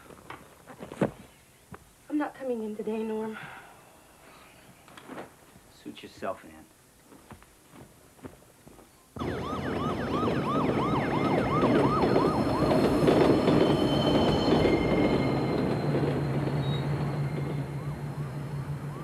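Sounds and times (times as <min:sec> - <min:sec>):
siren yelping: 0:09.2 - 0:15.7, 0:16.9 - 0:19.0
train rumbling over steel trestle: 0:11.4 - 0:18.9.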